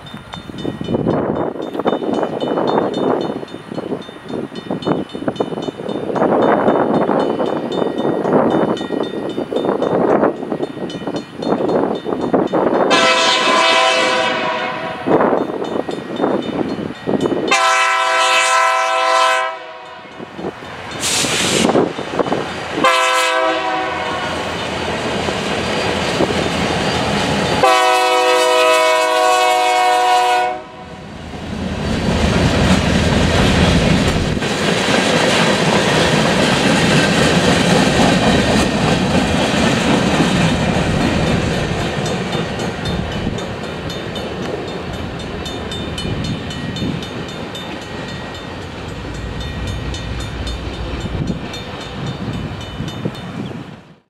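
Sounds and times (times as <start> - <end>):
locomotive air horn blasts: 12.9 - 15.2, 17.5 - 20.3, 22.8 - 24.4, 27.6 - 31.0
locomotive engine rumble: 31.1 - 53.2
train wheels clattering on rails: 31.5 - 53.7.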